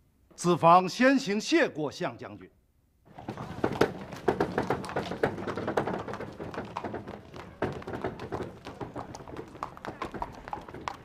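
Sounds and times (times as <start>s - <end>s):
wooden taps and knocks: 3.1s - 11.0s.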